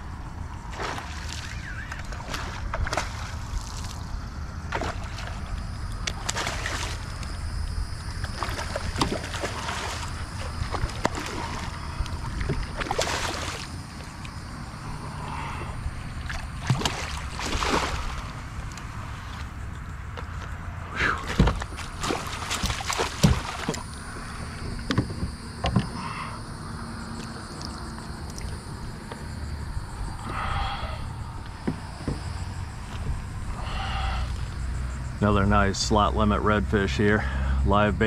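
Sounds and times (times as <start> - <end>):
steady low rumble: 0.0 - 38.0
water sloshing around hull: 0.2 - 35.0
fish splashing at water surface: 0.7 - 4.1, 4.7 - 14.4, 15.3 - 18.6, 21.2 - 24.3.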